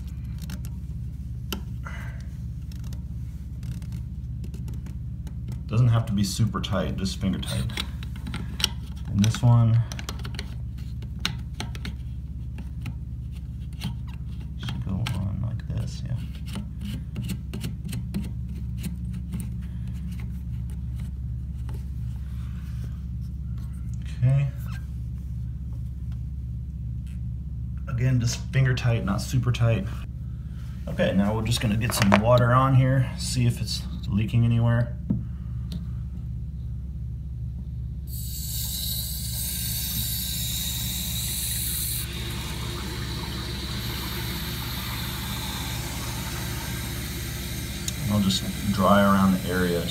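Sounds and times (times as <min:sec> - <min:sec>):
low rhythmic hum: 0:00.0 - 0:49.9
toilet tank refilling hiss: 0:38.1 - 0:49.9.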